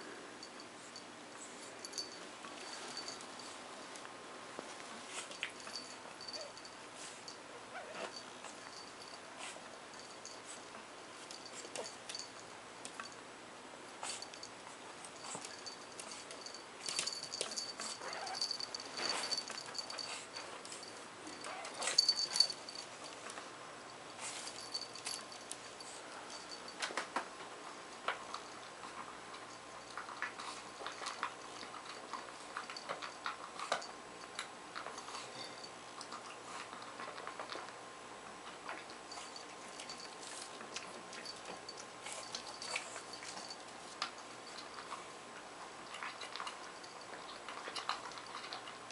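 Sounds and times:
puppy eating from food bowl: 0.4 - 13.3, 13.9 - 48.9.

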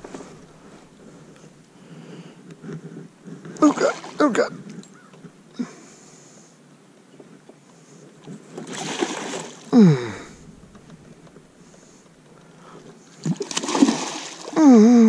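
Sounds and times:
man exclaiming: 3.6 - 4.5
fish splashing at water surface: 8.6 - 9.7, 13.2 - 14.6.

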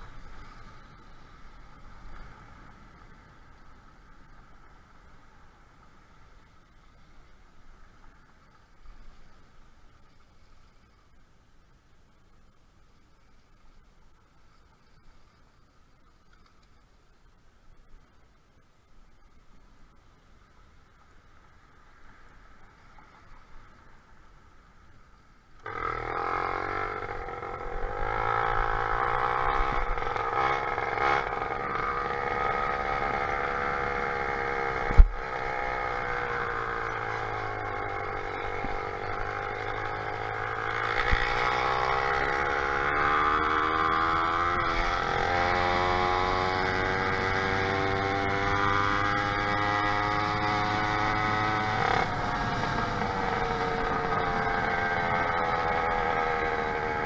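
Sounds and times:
motorized bicycle engine running: 48.5 - 57.0.

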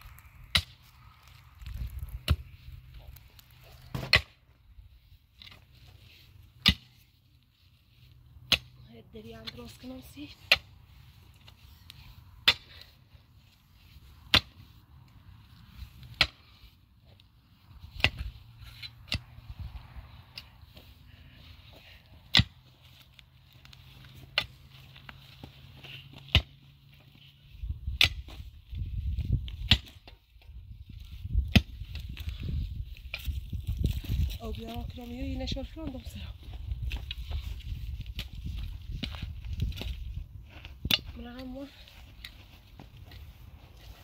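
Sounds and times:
low rumbling noise: 0.0 - 3.4.

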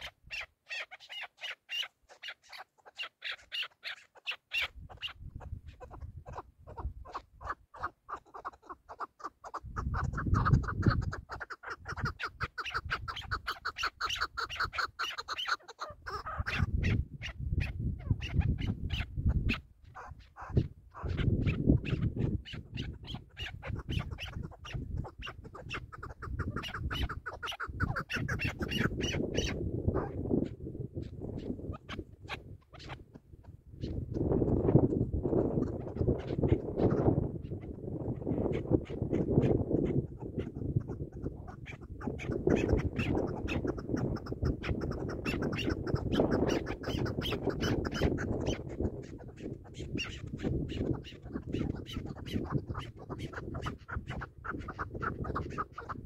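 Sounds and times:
partridge clucking calls: 0.0 - 56.0.

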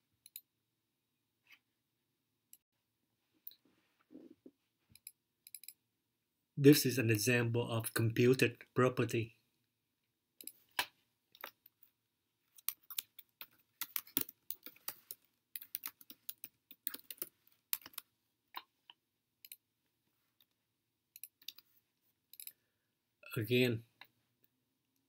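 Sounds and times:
typing on keyboard: 12.6 - 18.1.

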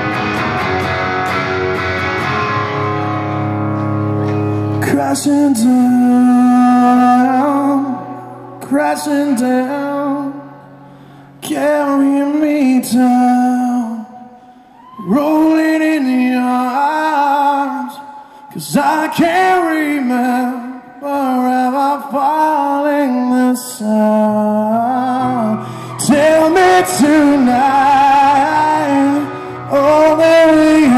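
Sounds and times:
man singing rock into microphone: 4.8 - 10.6, 11.4 - 14.2, 14.9 - 30.9.

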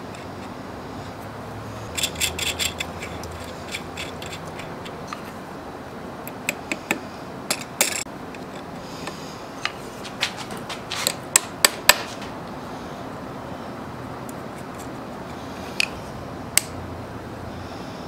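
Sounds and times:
metal handwheel clicking: 1.9 - 5.0.

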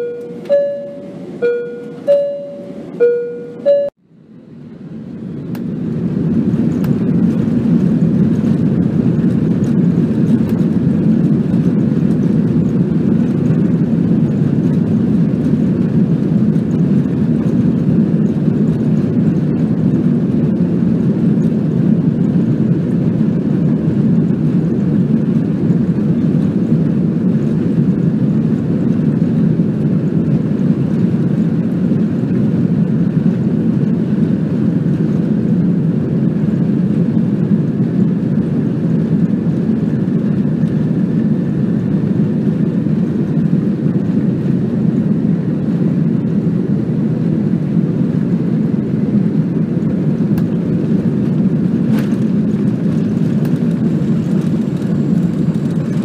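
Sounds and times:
jet airliner cabin noise: 0.0 - 56.0.

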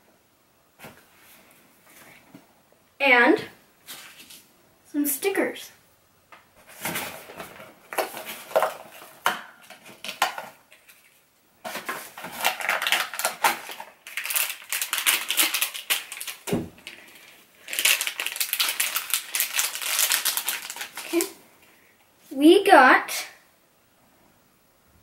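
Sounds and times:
packaging crinkling: 6.7 - 21.4.

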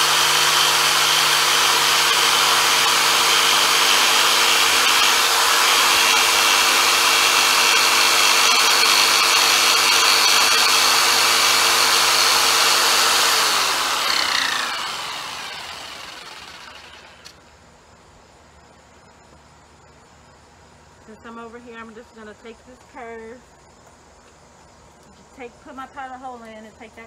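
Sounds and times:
jigsaw cutting wood: 0.0 - 17.4
jigsaw motor winding down: 0.0 - 17.4.

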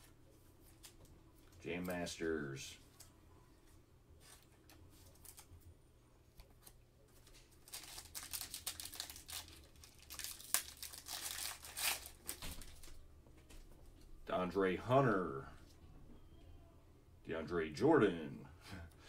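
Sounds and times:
plastic wrapper crinkling and tearing: 6.5 - 13.0.

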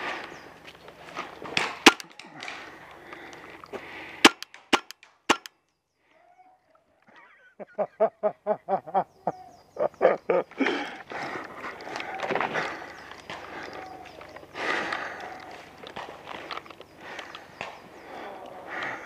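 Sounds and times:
paintball marker shots cracking: 1.6 - 2.8, 4.2 - 5.5
rustling movement: 10.9 - 19.0.

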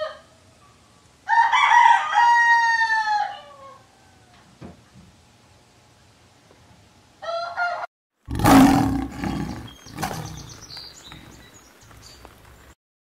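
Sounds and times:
lion roaring: 8.3 - 10.6.

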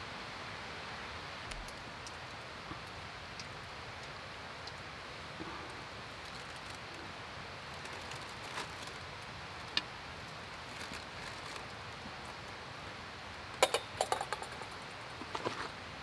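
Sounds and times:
steady background hiss: 0.0 - 16.0
small hard objects clinking: 13.6 - 15.6.

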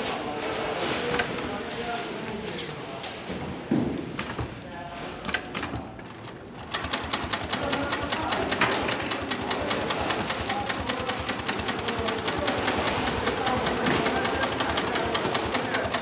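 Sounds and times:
sewing machine running: 5.6 - 16.0.

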